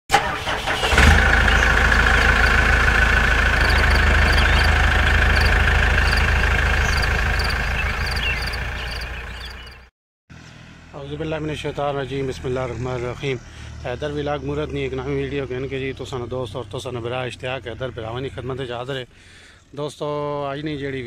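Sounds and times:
engine idling: 0.1 - 9.9
faint high ticking: 2.1 - 9.0.

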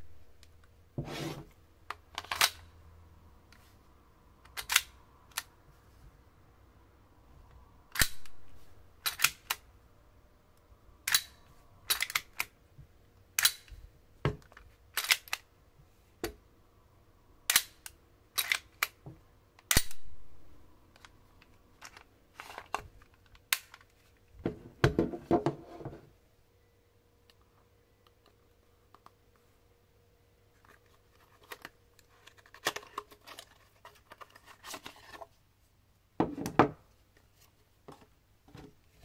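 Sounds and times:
pistol parts clicking: 4.4 - 5.5, 7.9 - 9.6, 11.0 - 12.5, 13.4 - 13.8, 14.9 - 15.5, 17.5 - 19.0, 19.6 - 20.3.

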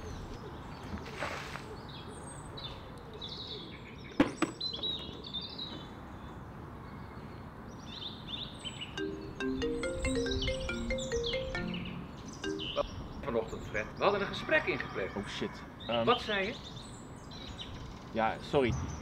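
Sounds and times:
small birds chirping: 1.7 - 14.3, 15.8 - 19.0
melody of short stepped notes: 9.0 - 13.2.

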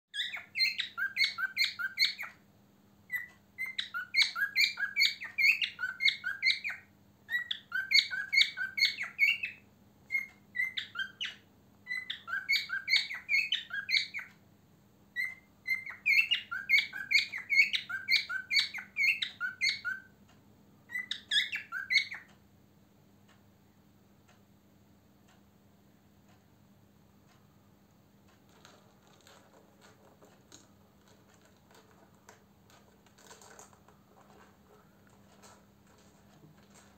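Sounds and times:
cockatiel chirping song: 0.1 - 2.4, 3.0 - 14.4, 15.1 - 20.2, 20.8 - 22.4, 28.5 - 36.9.

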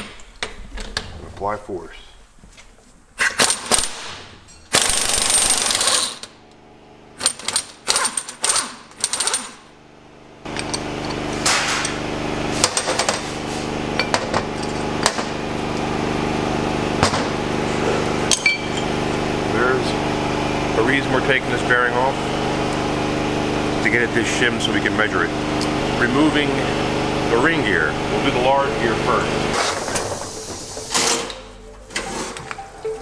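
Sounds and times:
pneumatic tool chattering: 3.2 - 6.4, 7.2 - 9.6, 29.5 - 31.4
steady machine drone: 4.7 - 33.0.

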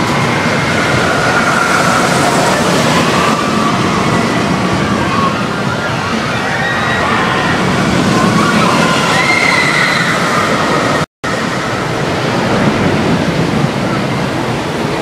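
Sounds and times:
roller coaster rumbling on track: 0.0 - 15.0
wavering high whine: 0.0 - 15.0.

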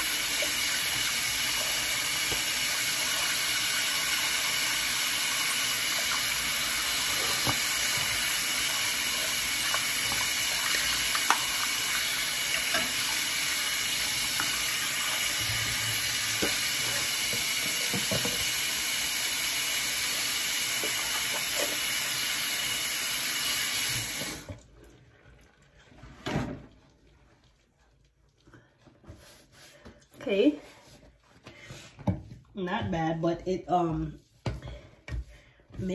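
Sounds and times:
tap water running: 0.0 - 30.0.

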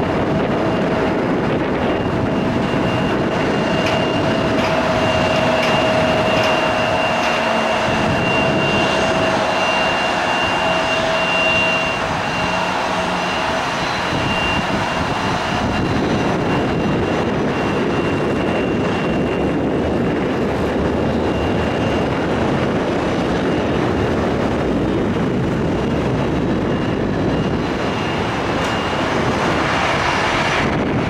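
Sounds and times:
jet engines running: 0.0 - 31.0.

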